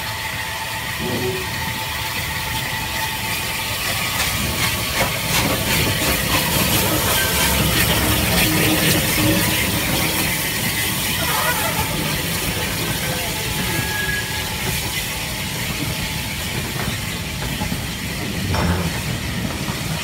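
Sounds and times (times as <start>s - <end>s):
steam hissing: 0.0s - 20.0s.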